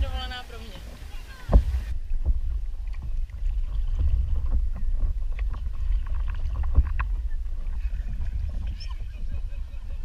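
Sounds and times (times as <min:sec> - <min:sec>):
water splashing against paddleboard: 0:00.0 - 0:10.0
wind rumble on microphone: 0:00.0 - 0:10.0.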